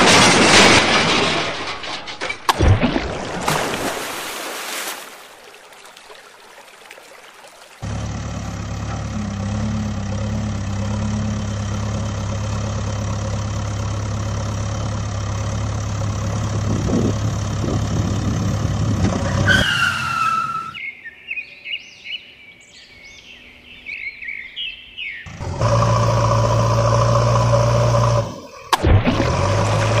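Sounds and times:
backhoe engine running: 0:07.8 - 0:19.6, 0:25.3 - 0:30.0.

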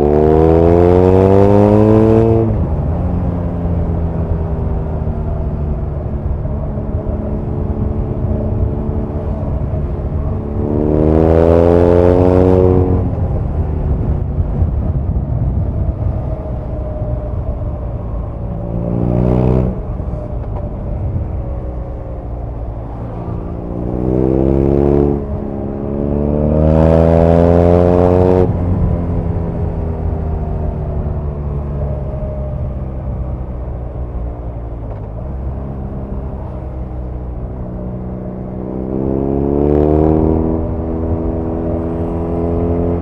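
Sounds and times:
motorcycle engine revving: 0:00.0 - 0:04.6, 0:07.0 - 0:13.8, 0:22.6 - 0:31.0, 0:35.5 - 0:43.0.

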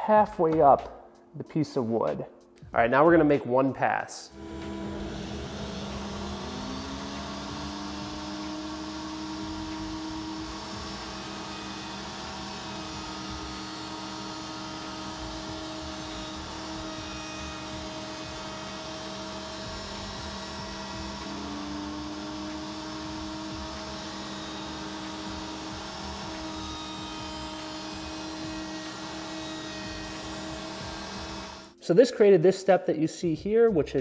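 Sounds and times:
router cutting wood whine: 0:04.4 - 0:31.7.

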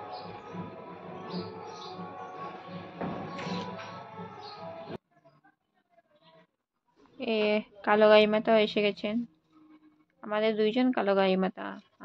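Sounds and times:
background music with low beat: 0:00.0 - 0:05.0.

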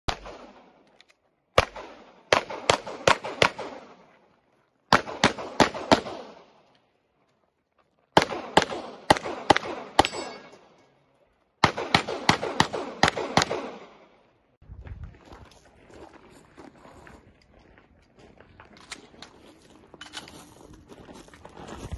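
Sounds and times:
handgun shots with echo: 0:08.2 - 0:10.8, 0:11.6 - 0:14.0.

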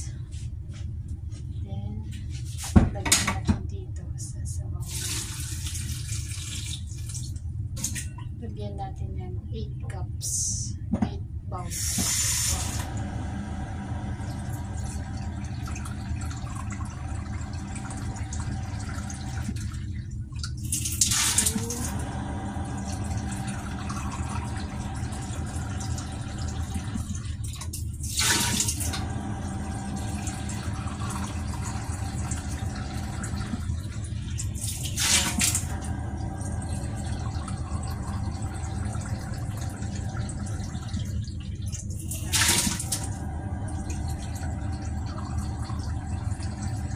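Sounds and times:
water splashing into a pot: 0:04.8 - 0:08.0, 0:22.8 - 0:29.0, 0:36.8 - 0:43.1
water running from a tap: 0:04.8 - 0:08.1, 0:11.7 - 0:46.9.

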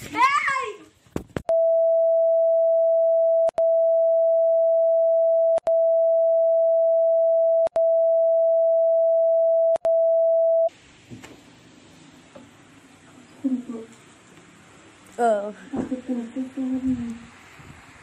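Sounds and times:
electronic test tone beep: 0:01.5 - 0:10.7.

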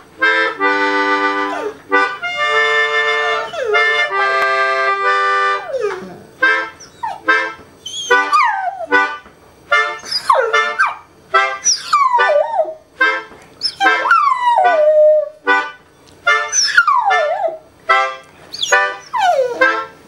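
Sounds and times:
melodica playing reggae chords: 0:00.0 - 0:20.0
dog howling: 0:03.2 - 0:04.0, 0:05.5 - 0:07.3, 0:07.9 - 0:09.0, 0:11.6 - 0:12.8, 0:13.6 - 0:15.4, 0:16.5 - 0:17.6, 0:18.6 - 0:19.8.

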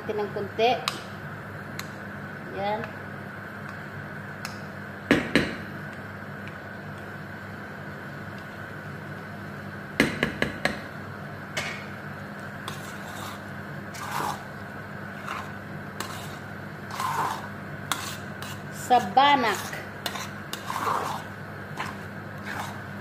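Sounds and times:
steady low hum: 0:00.0 - 0:23.0
spoon scraping thick pasta: 0:12.5 - 0:23.0.

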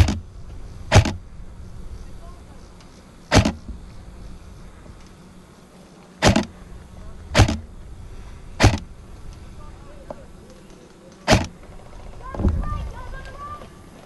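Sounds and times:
airsoft rifle shots: 0:00.0 - 0:00.3, 0:00.9 - 0:01.2, 0:03.3 - 0:03.7, 0:06.2 - 0:06.6, 0:07.3 - 0:07.7, 0:08.6 - 0:09.0, 0:11.2 - 0:12.5.

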